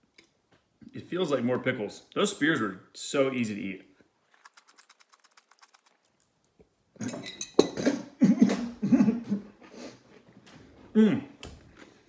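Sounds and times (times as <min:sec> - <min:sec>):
pickle chips crunching: 0:04.3 - 0:06.6.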